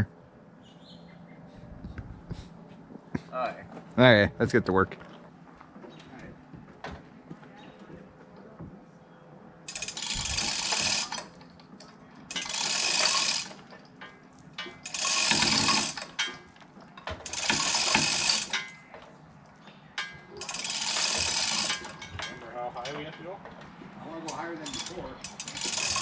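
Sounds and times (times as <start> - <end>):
ratchet clicking: 9.7 - 11.4, 12.3 - 13.6, 14.6 - 16.3, 17.2 - 18.8, 20.4 - 22.4, 24.3 - 26.0
chain rattling through hoist: 9.7 - 18.9, 20.0 - 23.4, 24.2 - 26.0.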